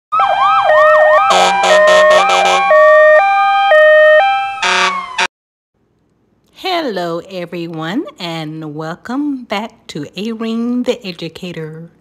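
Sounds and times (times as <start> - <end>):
emergency vehicle sirens: 0.1 - 5.3
harsh horn blasts: 1.2 - 2.8, 4.6 - 5.3.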